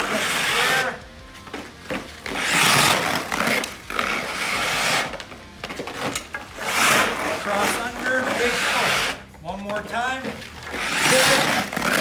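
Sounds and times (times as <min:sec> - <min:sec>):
skate blades scraping ice: 0:00.0 - 0:00.9, 0:02.0 - 0:05.2, 0:05.9 - 0:09.2, 0:10.2 - 0:12.0.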